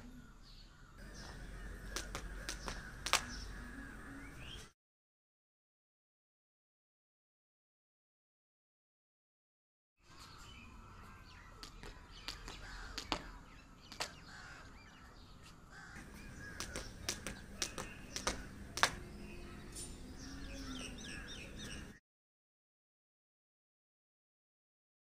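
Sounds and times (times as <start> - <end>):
birds calling: 0.0 - 4.7, 10.0 - 22.0
jump rope slapping rubber mat: 1.9 - 3.4, 16.5 - 19.0.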